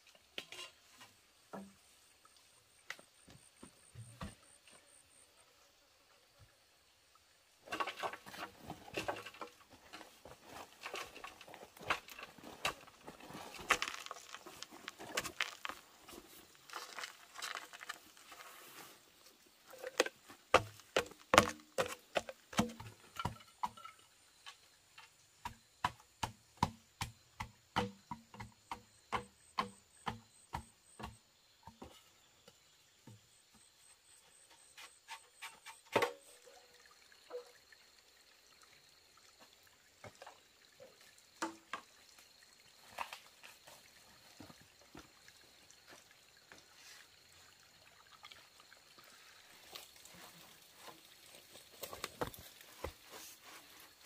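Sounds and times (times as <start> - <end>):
rustling and crackling: 7.7 - 22.4
regular knocks: 19.8 - 24.0.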